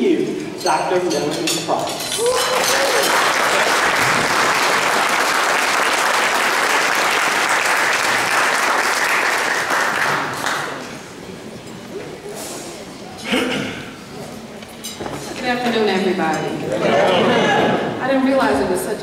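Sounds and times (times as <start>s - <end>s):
audience applauding: 2.2s - 10.9s.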